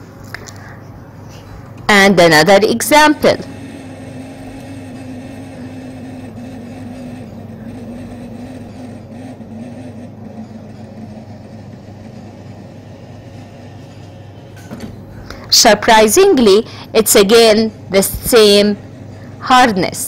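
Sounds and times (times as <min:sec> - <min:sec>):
tester motor humming: 0:01.9 - 0:19.8.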